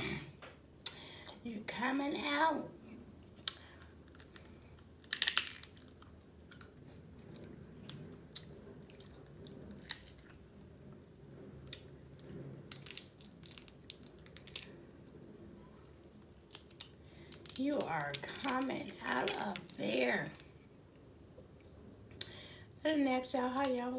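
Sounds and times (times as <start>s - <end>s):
crab shell clicks and crackles: 3.4s - 6.8s, 9.8s - 10.2s, 12.7s - 14.8s, 16.2s - 20.5s.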